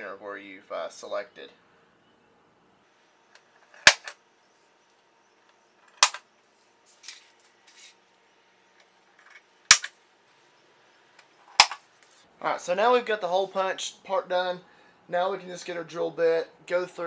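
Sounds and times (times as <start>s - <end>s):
center punch snapping into metal: 3.8s - 4.2s, 9.7s - 9.9s.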